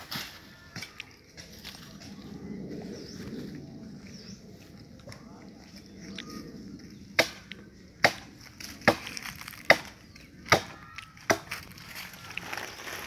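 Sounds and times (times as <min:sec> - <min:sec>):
rustle and scrape: 0:00.0 - 0:03.6, 0:11.5 - 0:13.0
machete chopping wood: 0:07.2 - 0:07.4, 0:08.0 - 0:11.6.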